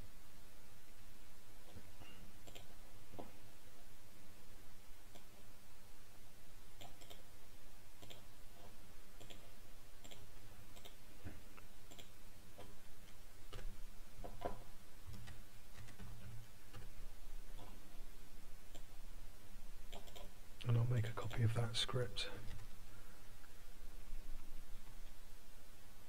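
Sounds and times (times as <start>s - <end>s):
keyboard and mouse clicks: 1.6s - 3.3s, 5.1s - 5.4s, 6.8s - 7.3s, 8.0s - 17.8s, 18.7s - 18.9s, 19.9s - 20.3s.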